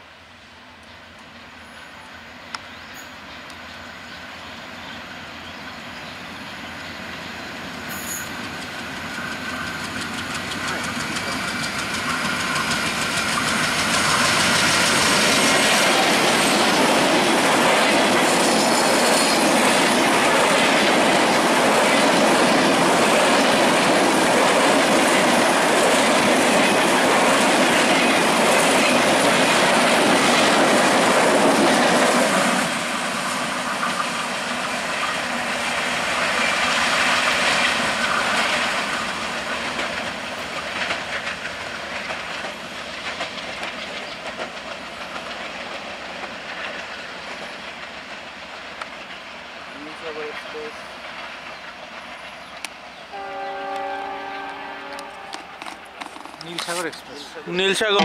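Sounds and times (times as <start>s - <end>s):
train passing at speed: 0.0s - 58.0s
wheel clatter on rails: 8.4s - 32.6s, 36.3s - 49.2s, 55.3s - 58.0s.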